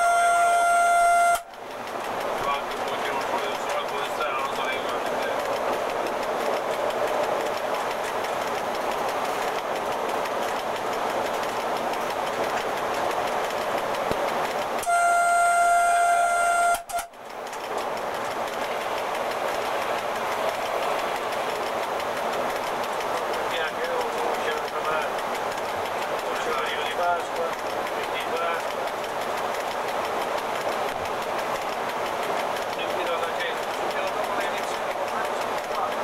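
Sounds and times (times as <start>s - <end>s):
locomotive horn blast: 0.0s - 1.5s, 14.8s - 17.1s
wheels rolling on rail: 0.0s - 36.0s.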